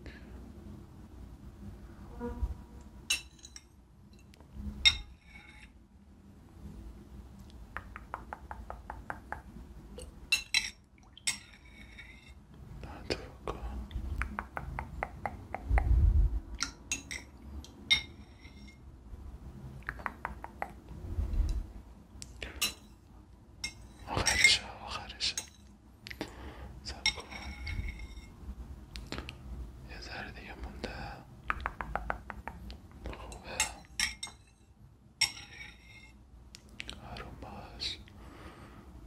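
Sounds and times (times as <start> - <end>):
metal spoon clinking against bowl: 3.1 - 5.7, 10.3 - 12.4, 16.6 - 18.8, 22.6 - 23.0, 23.6 - 24.6, 25.3 - 25.8, 27.0 - 28.3, 33.3 - 36.2.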